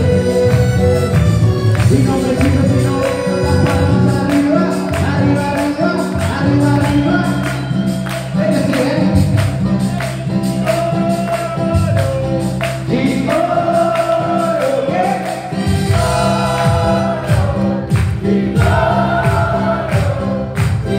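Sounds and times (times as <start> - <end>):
person singing: 0.0 - 1.0, 1.8 - 7.6
bass guitar: 0.0 - 20.9
keyboard: 0.0 - 20.9
percussion beat: 0.0 - 20.9.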